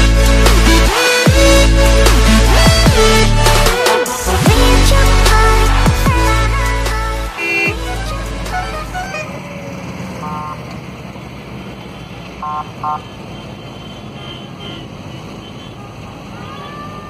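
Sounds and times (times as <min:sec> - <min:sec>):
bass-heavy music: 0:00.0 - 0:09.4
van engine and road noise: 0:00.0 - 0:17.0
short car horn toots: 0:07.3 - 0:07.8.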